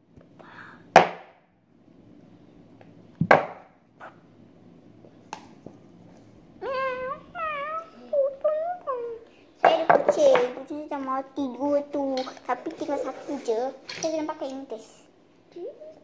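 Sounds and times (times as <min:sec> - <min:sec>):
plastic cups knocking on table: 0:03.2 - 0:03.7, 0:09.6 - 0:10.6.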